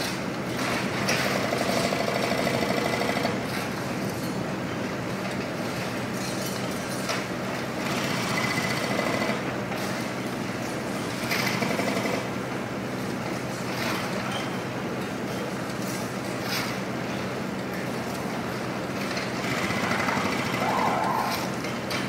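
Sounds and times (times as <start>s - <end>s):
excavator engine running: 6.6s - 22.0s
hydraulic breaker hammering concrete: 19.0s - 22.0s.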